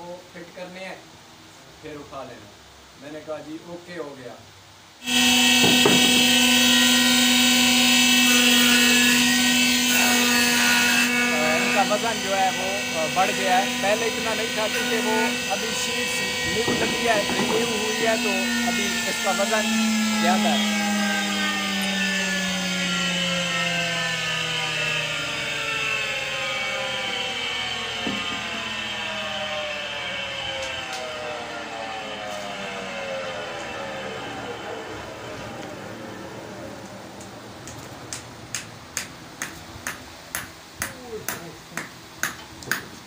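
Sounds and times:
electric motor drone with whine: 0:05.0 - 0:38.5
wooden knocks: 0:05.6 - 0:06.2, 0:16.6 - 0:17.9.

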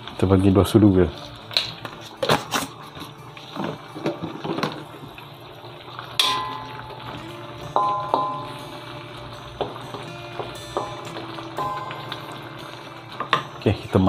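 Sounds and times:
wok ringing from knock: 0:06.2 - 0:08.8, 0:09.6 - 0:12.4, 0:13.2 - 0:13.6.

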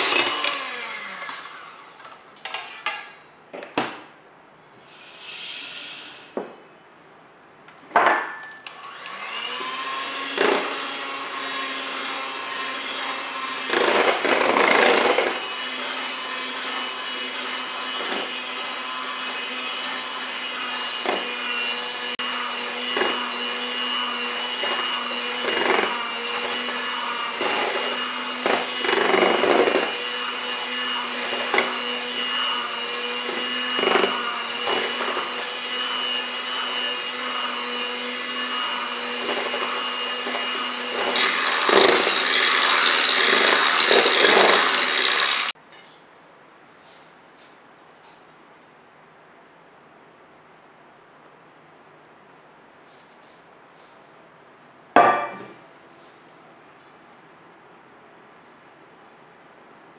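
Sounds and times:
kitchen appliance motor running: 0:08.8 - 0:45.6
sharp knocks: 0:55.0 - 0:55.6.

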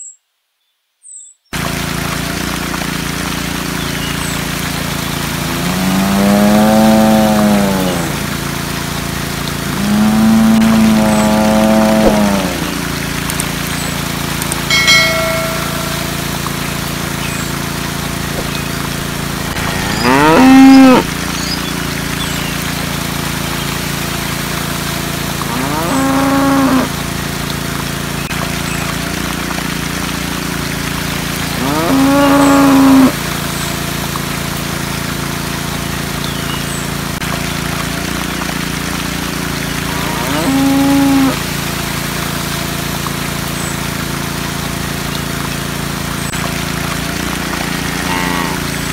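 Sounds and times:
water pump motor hum: 0:01.6 - 0:48.9
cow mooing: 0:05.5 - 0:08.2, 0:09.7 - 0:12.9, 0:19.4 - 0:21.1, 0:25.4 - 0:26.9, 0:31.6 - 0:33.1, 0:39.8 - 0:41.4, 0:47.3 - 0:48.9
short chime: 0:14.7 - 0:16.6.

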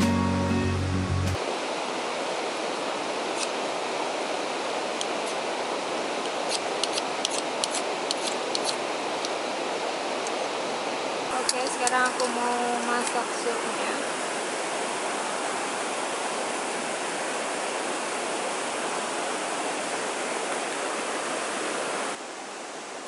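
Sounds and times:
background music: 0:00.0 - 0:01.4
steady outdoor hiss: 0:00.0 - 0:23.0
sharp clicks: 0:06.5 - 0:09.4, 0:11.4 - 0:13.2.

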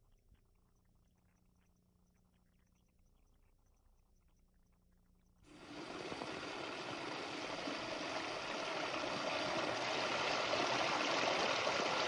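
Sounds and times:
water jets splashing into barrels: 0:05.5 - 0:12.0.

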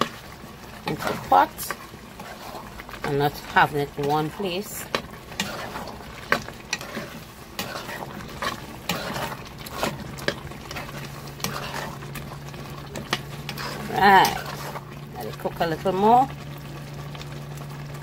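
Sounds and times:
pot simmering and bubbling: 0:00.0 - 0:18.0
steady low hum: 0:00.0 - 0:18.0
metal spoon scraping pot: 0:00.8 - 0:12.2, 0:12.8 - 0:14.9.

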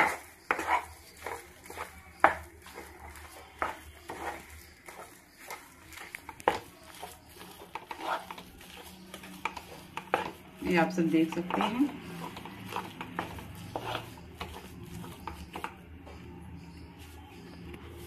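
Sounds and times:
spatula scraping frying pan: 0:00.0 - 0:18.0.

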